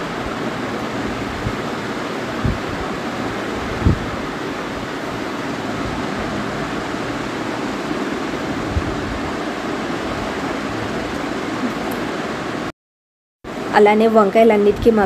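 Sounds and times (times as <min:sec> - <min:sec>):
steady rushing noise: 0:00.0 - 0:12.7.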